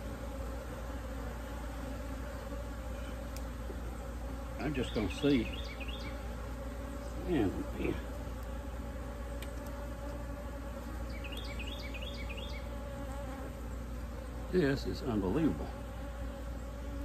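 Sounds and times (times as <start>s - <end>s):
bees buzzing: 0.0s - 17.0s.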